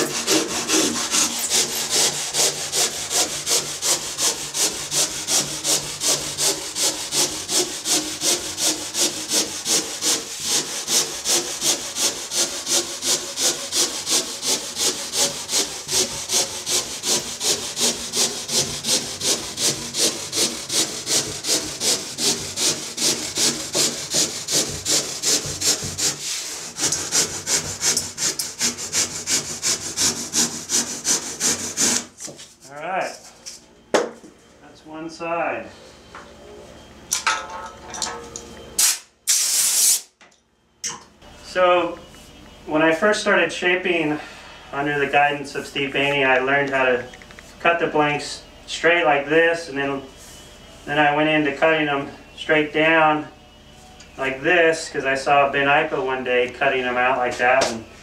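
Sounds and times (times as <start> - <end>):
handsaw cutting foam: 0.0 - 32.4.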